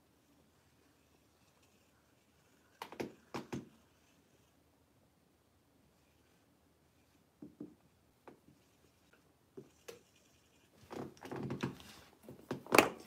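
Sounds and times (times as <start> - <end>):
faint knocks and taps: 2.7 - 3.8, 7.4 - 8.7.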